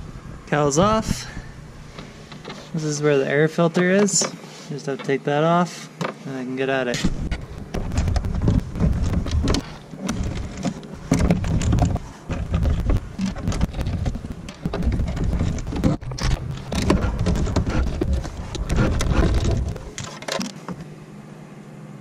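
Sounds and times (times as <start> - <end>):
wind rumble on microphone: 0.0 - 1.6, 7.0 - 20.0
plastic parts clicking and knocking: 7.0 - 20.8.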